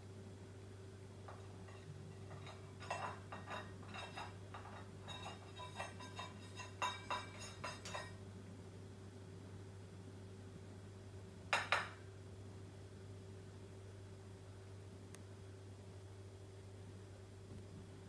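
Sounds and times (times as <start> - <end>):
beak knocking on metal bowl: 11.6 - 12.0.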